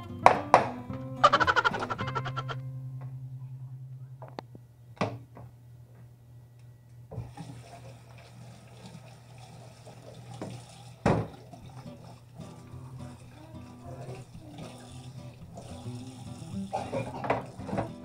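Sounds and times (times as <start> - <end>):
steady low hum: 1.2 - 7.2
water running into sink: 7.2 - 18.0.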